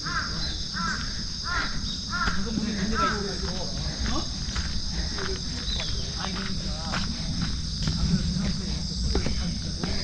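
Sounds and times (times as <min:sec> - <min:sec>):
insects shrilling: 0:00.0 - 0:09.8
footsteps on trail: 0:00.0 - 0:10.0.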